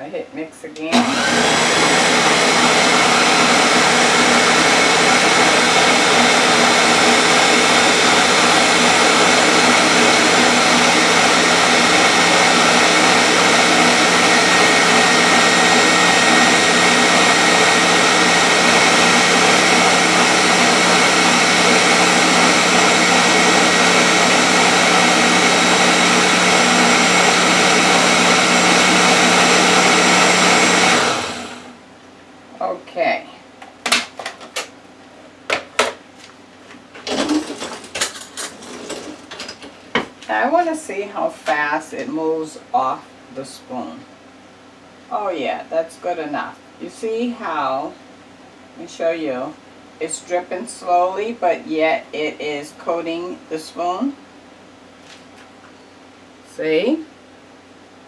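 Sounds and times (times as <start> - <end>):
blender motor whining: 0.9 - 31.8.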